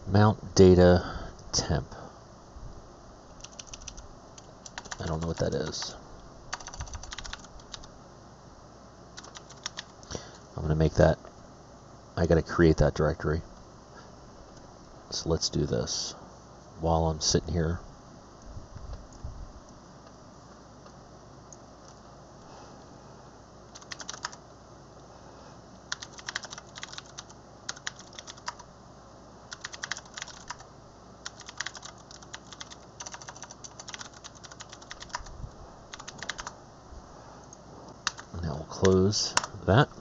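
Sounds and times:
faint low hum: 0.0s - 40.0s
computer keyboard typing: 3.4s - 7.9s, 9.2s - 10.0s, 23.7s - 24.4s, 25.9s - 28.7s, 29.5s - 30.6s, 31.2s - 35.3s, 35.9s - 36.6s, 38.0s - 39.6s.

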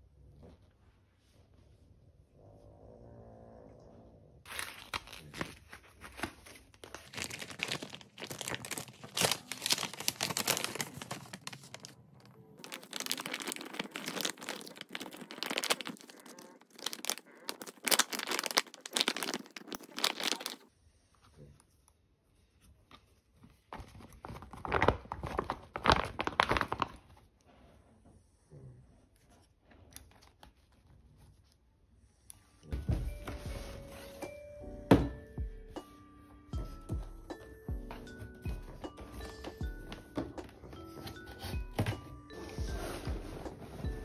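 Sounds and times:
plastic mesh bag crinkling: 4.5s - 20.7s, 24.2s - 27.1s.

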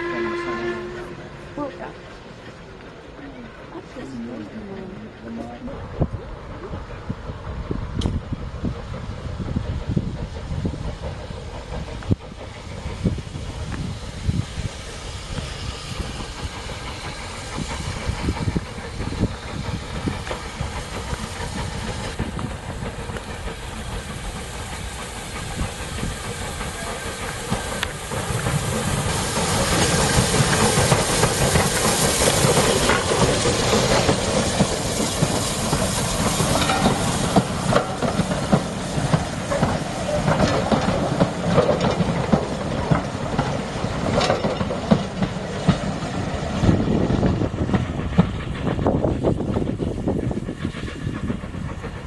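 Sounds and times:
steam hissing: 0.0s - 52.0s
steam locomotive passing: 0.0s - 52.0s
wheels clicking over rail joints: 15.3s - 52.0s.

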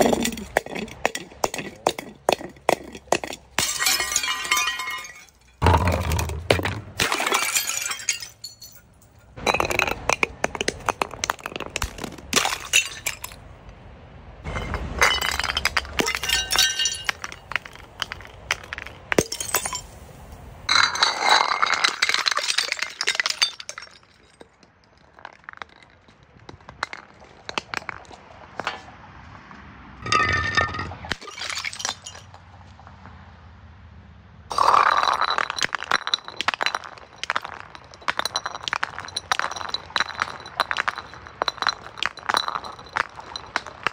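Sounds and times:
glass bottles smashing: 0.0s - 13.4s, 14.5s - 20.0s, 20.7s - 25.9s, 30.0s - 32.4s, 34.5s - 43.9s
glass shards clinking: 0.0s - 13.4s, 14.5s - 20.0s, 20.7s - 24.6s, 34.5s - 43.9s.

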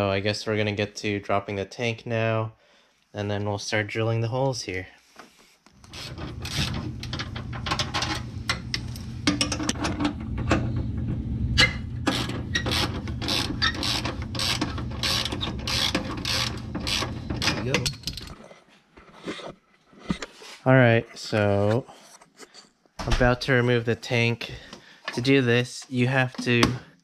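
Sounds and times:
steady low hum: 5.8s - 18.6s
ratchet wrench clicking: 12.1s - 17.1s.

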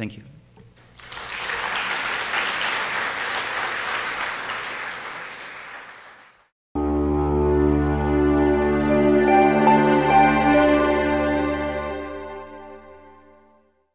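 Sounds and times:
audience applauding: 0.9s - 6.5s
music with held notes: 6.8s - 13.8s.

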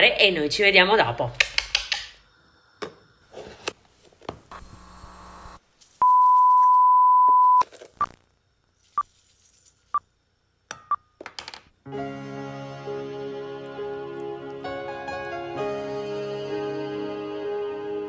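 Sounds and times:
electronic beeps: 6.0s - 8.2s.

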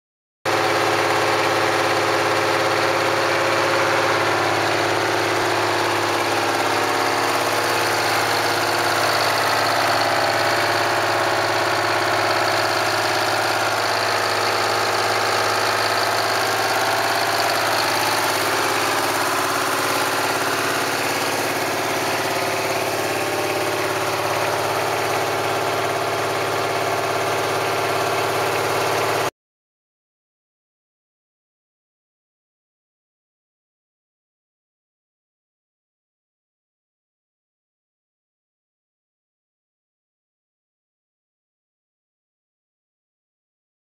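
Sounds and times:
diesel engine running: 0.5s - 29.3s.

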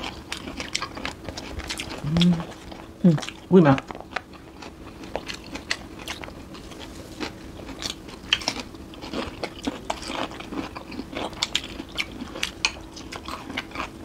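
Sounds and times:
faint steady hum: 0.0s - 14.0s
people chewing crunchy food: 0.0s - 14.0s.

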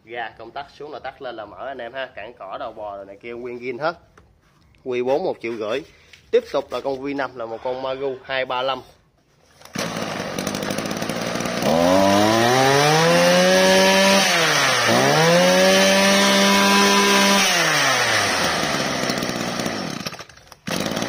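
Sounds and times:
brush cutter engine revving: 9.5s - 21.0s.

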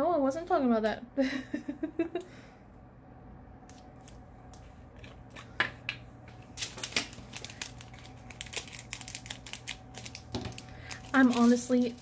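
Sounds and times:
plastic bags clicking and crinkling: 6.4s - 12.0s.

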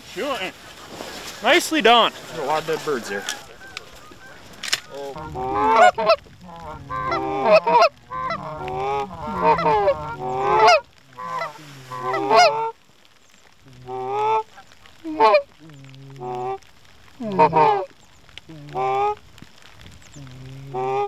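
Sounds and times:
goose honking: 1.4s - 12.8s, 13.8s - 15.5s, 17.2s - 17.9s, 20.6s - 21.0s.

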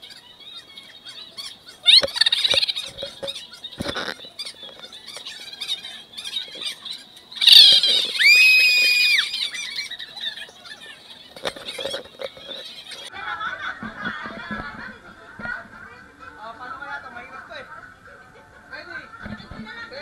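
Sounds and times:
shrill squeals: 7.4s - 10.4s.

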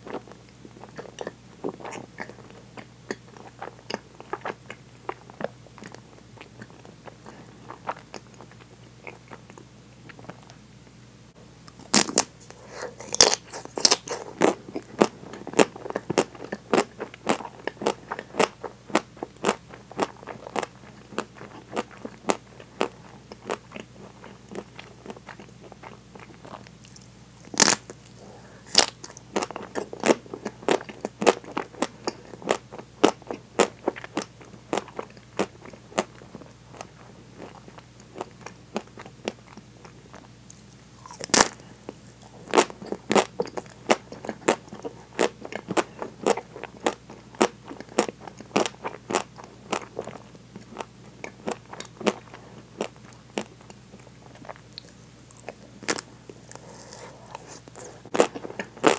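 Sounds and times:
crunchy chewing: 0.0s - 10.6s, 11.7s - 58.9s.

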